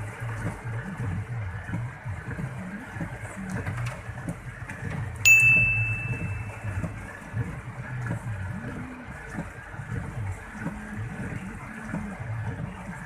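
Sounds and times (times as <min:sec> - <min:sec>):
low hum of car: 0:00.0 - 0:13.0
sharp high ding: 0:05.3 - 0:06.8.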